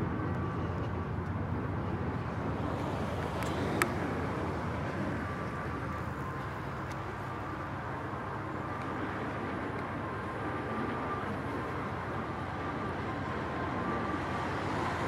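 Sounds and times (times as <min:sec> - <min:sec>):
traffic rumble: 0:00.0 - 0:15.0
wind: 0:00.0 - 0:15.0.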